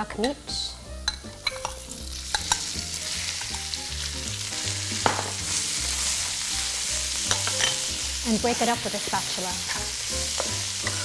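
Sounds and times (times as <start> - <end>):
meat sizzling in a wok: 0.0 - 11.0
utensil clinking against wok: 1.0 - 2.8, 7.2 - 8.0.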